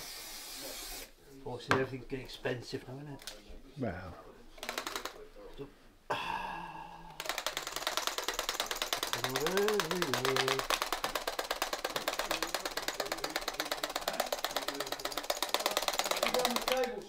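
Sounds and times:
static grass applicator ticking: 7.2 - 17.0.

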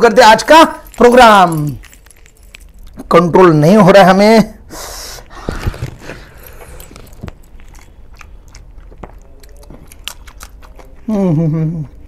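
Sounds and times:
man chewing food: 1.7 - 3.1, 5.2 - 12.0.

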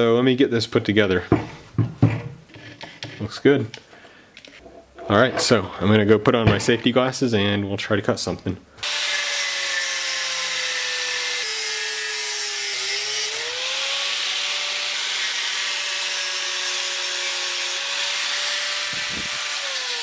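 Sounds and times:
angle grinder cutting metal: 8.8 - 20.0.

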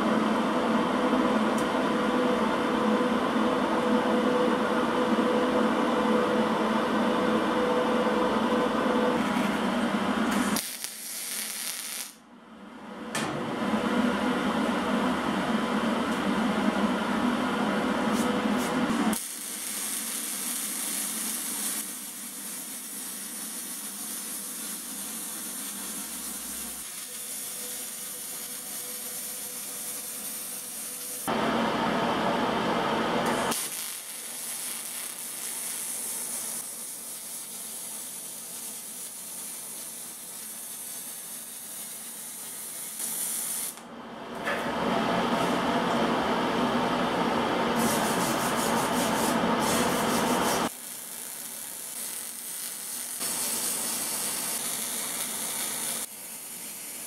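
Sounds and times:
welding arc crackling hiss: 10.3 - 12.2, 18.1 - 31.3, 33.2 - 43.9, 47.8 - 57.0.

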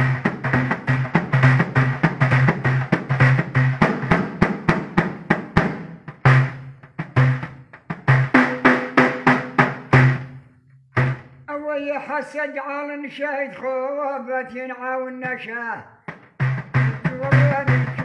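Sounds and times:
frame drum beating: 0.0 - 11.4, 16.1 - 18.0.

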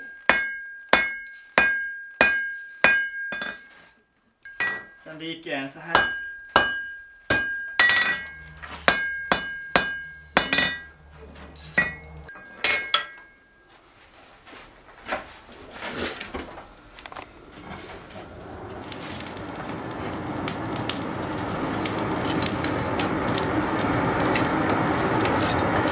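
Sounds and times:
hammer striking iron on anvil: 0.0 - 3.8, 4.5 - 5.0, 5.9 - 13.5
rushing noise: 17.4 - 25.9.

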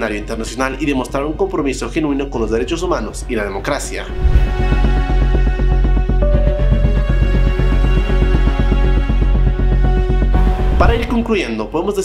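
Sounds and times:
deep continuous bass: 4.0 - 11.6
music with fast pulse: 4.1 - 12.0.

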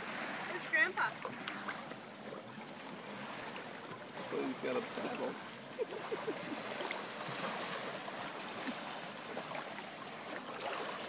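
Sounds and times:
lake water lapping: 0.0 - 11.0
light water splashes: 0.0 - 11.0.

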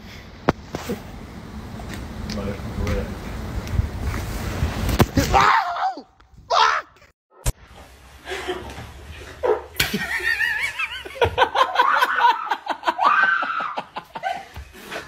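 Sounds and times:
people laughing: 9.8 - 15.0.

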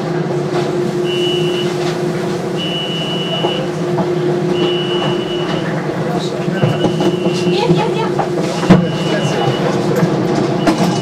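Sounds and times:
high electronic beep: 4.6 - 5.7.

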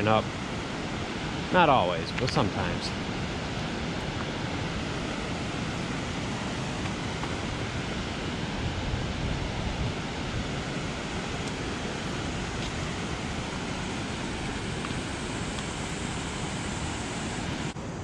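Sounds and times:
steady rushing noise: 0.0 - 18.0.

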